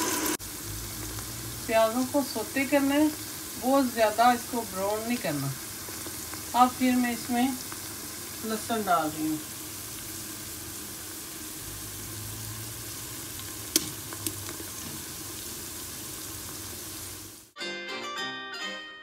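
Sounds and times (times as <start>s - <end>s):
onions sizzling in oil: 0.0s - 17.6s
plucked-string music: 17.6s - 19.0s.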